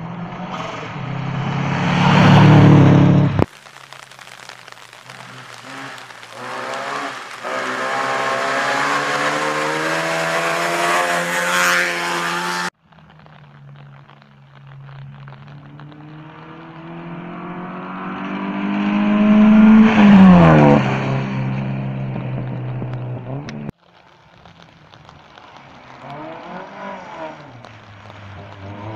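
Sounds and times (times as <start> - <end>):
rally car passing by: 0.0 - 3.4, 6.4 - 12.7, 16.2 - 23.7
rally car engine accelerating: 6.4 - 12.7, 15.7 - 23.7.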